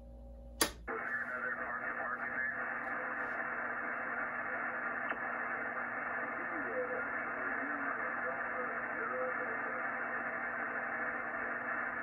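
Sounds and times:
click: 0:00.6 - 0:00.8
radio static hiss: 0:00.9 - 0:12.0.

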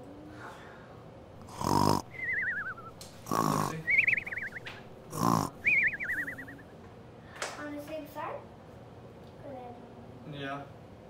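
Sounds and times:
cartoon snoring: 0:01.4 - 0:04.5, 0:05.1 - 0:06.5.

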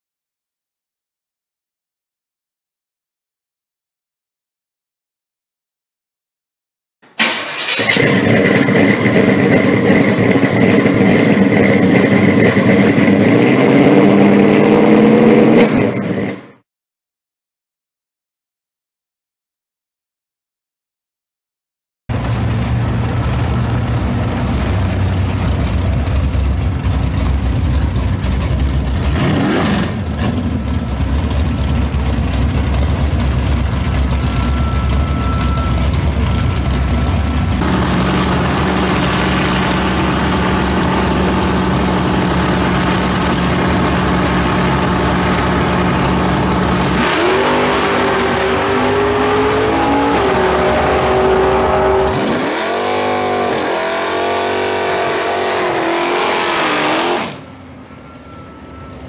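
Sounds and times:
car launching with rising engine: 0:07.2 - 0:09.7
muscle car engines running: 0:07.2 - 0:16.4, 0:22.1 - 0:59.0.

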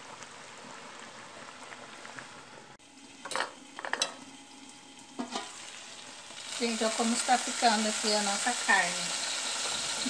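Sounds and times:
meat sizzling and bubbling in pot: 0:00.0 - 0:10.0
metal lid clanking against pot: 0:05.2 - 0:05.6.

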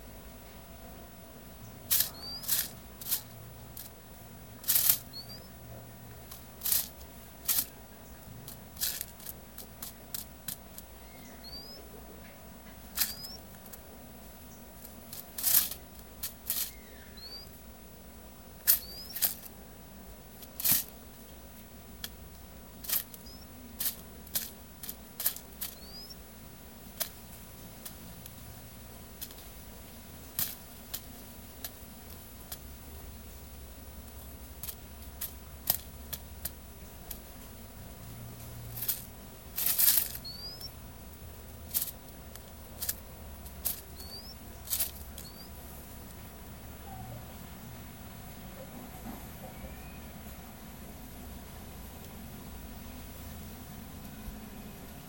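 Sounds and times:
bird bill tapping on paper: 0:01.9 - 0:03.2, 0:08.4 - 0:13.8, 0:14.8 - 0:17.4, 0:18.6 - 0:19.6, 0:22.8 - 0:26.2, 0:26.9 - 0:27.2, 0:34.1 - 0:37.3, 0:41.7 - 0:46.2.

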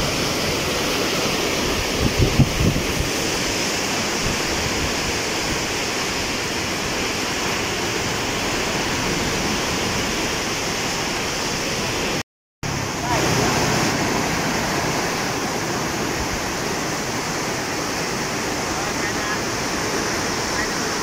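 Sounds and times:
floodwater rushing in a roar: 0:00.0 - 0:21.0
wind bumps on microphone: 0:01.6 - 0:06.9.

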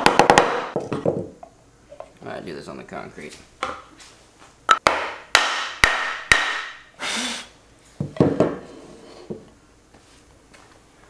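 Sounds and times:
boards knocking on workbench: 0:00.0 - 0:01.4, 0:08.0 - 0:08.6.

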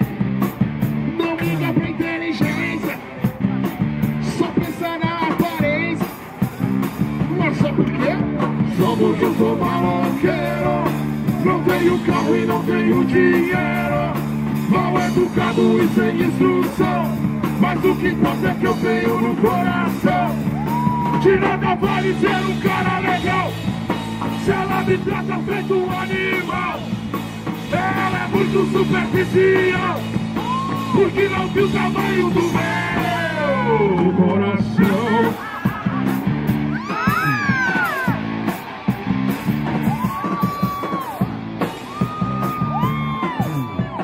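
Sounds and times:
punk rock band playing: 0:00.0 - 0:44.0
sung and shouted vocals: 0:07.9 - 0:27.0, 0:27.6 - 0:38.3.

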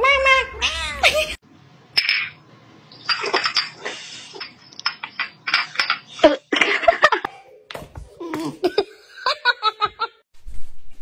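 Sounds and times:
person giggling: 0:08.2 - 0:10.2.

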